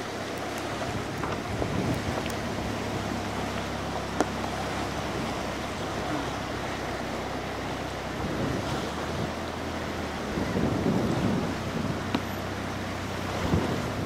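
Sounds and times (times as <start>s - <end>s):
river water rushing: 0.0s - 14.0s
wind rumbling on microphone: 0.0s - 14.0s.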